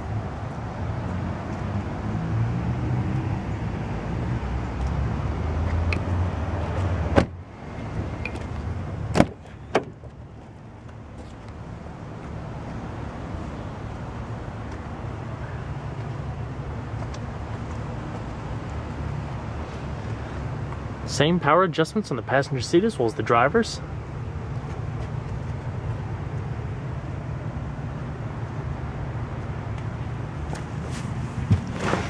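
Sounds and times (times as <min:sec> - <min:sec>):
car door shutting: 0:07.1 - 0:07.4, 0:09.1 - 0:10.0.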